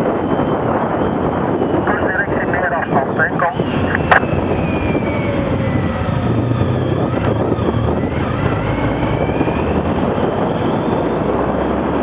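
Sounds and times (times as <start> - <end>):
motorcycle engine accelerating: 3.6 - 12.0.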